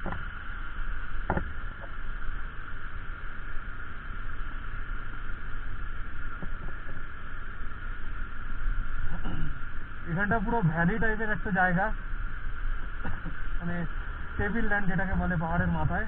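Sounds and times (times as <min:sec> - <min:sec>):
motorcycle engine rumble: 0:00.0 - 0:00.4, 0:07.8 - 0:16.0.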